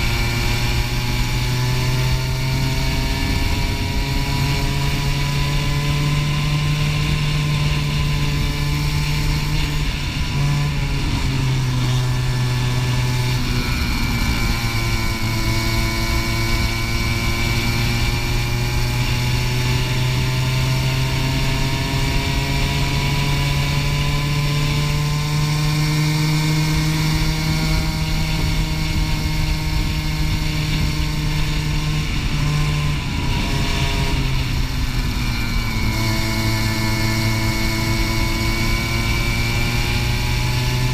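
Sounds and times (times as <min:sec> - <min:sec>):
go-kart engine at speed: 0:00.0 - 0:40.9
rushing wind noise: 0:00.0 - 0:40.9.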